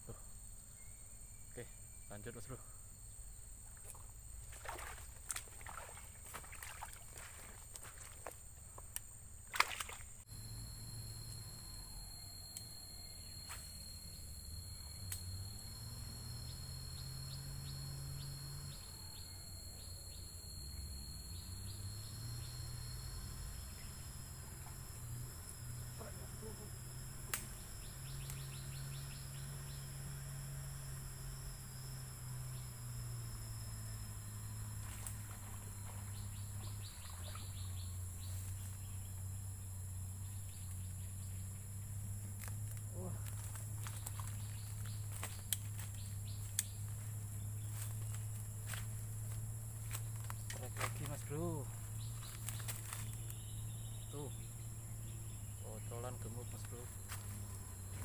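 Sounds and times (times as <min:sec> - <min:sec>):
insects buzzing: 0:00.0 - 0:58.0
low hum: 0:00.0 - 0:58.0
sharp clicks: 0:27.2 - 0:28.7.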